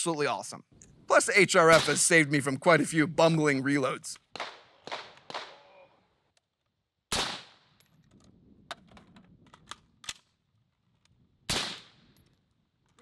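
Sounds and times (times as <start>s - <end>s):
rifle shots: 1.7s - 2.1s, 4.3s - 5.6s, 7.1s - 7.7s, 11.5s - 12.0s
magazine change clicks and clatter: 7.8s - 11.2s.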